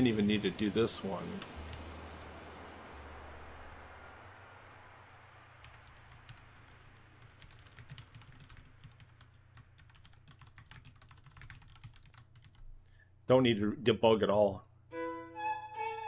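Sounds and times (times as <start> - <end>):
faint keyboard typing: 1.4 - 1.9, 5.6 - 12.9.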